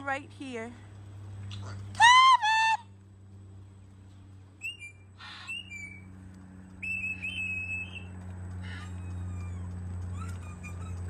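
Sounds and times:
steady low hum: 0:00.0 - 0:11.0
high whistling: 0:04.6 - 0:06.1, 0:06.8 - 0:08.1.

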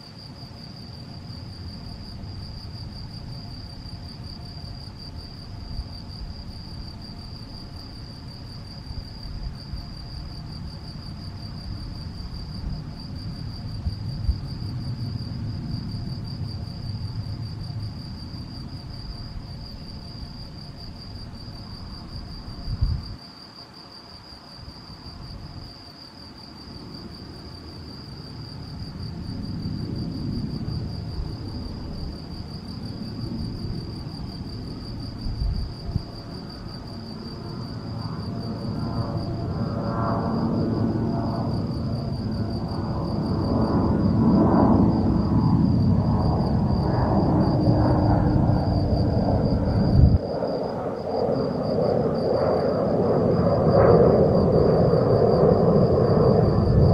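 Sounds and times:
cricket chirping: 0:00.0 - 0:56.9
low rumble: 0:44.9 - 0:50.4.

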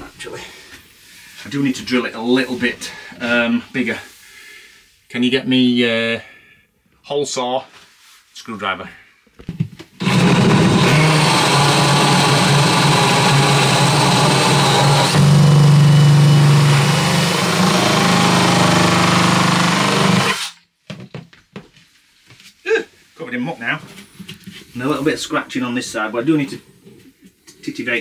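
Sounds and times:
cordless drill running: 0:10.0 - 0:20.6.

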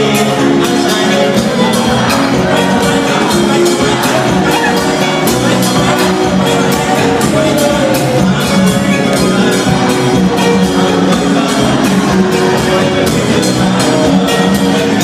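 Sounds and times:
electric guitar: 0:00.0 - 0:15.0
keyboard: 0:00.0 - 0:15.0.

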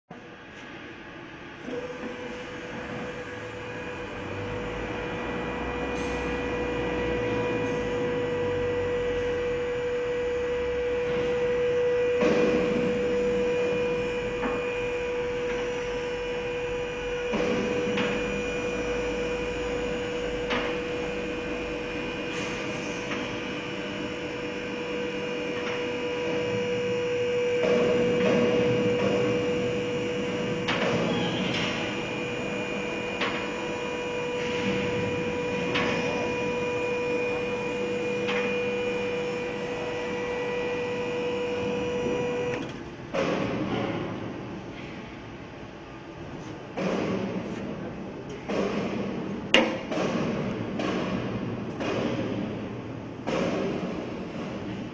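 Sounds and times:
hydraulic car lift humming: 0:00.1 - 0:54.9.

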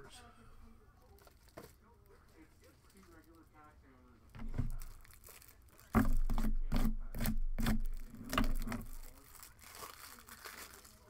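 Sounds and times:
hard objects knocking and clattering: 0:04.4 - 0:05.2, 0:05.9 - 0:09.1.

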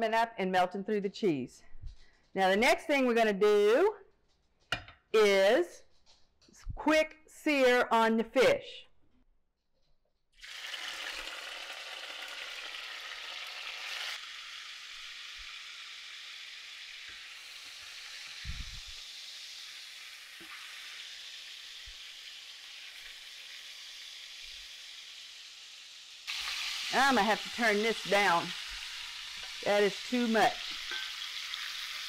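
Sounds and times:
fish sizzling in frying pan: 0:10.4 - 0:32.0.

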